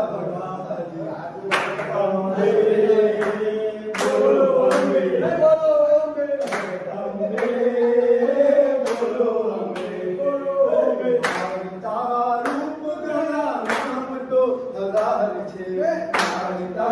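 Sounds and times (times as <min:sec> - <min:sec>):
men singing devotional song: 0:00.0 - 0:16.9
sharp hand claps: 0:01.5 - 0:02.0, 0:03.2 - 0:05.0, 0:06.4 - 0:07.6, 0:08.8 - 0:09.2, 0:09.8 - 0:10.0, 0:11.2 - 0:11.6, 0:12.4 - 0:12.7, 0:13.6 - 0:14.2, 0:14.9 - 0:15.2, 0:16.1 - 0:16.6.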